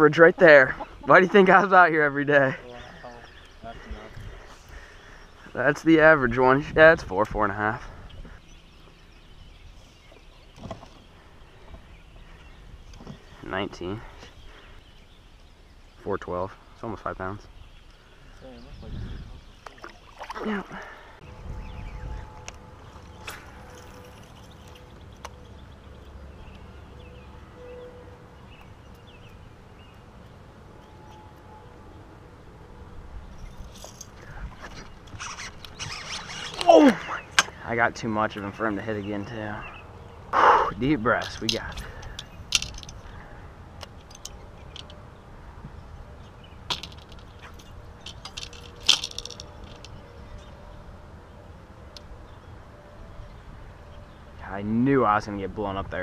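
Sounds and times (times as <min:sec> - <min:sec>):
wind rumble on microphone: 0:03.8 - 0:04.5, 0:06.2 - 0:10.8, 0:18.6 - 0:19.7, 0:21.2 - 0:25.7, 0:33.0 - 0:36.5.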